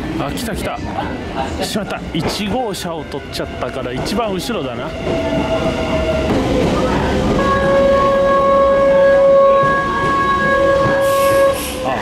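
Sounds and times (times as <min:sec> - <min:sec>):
train rumbling: 0:00.0 - 0:12.0
high-pitched train squeal: 0:04.8 - 0:12.0.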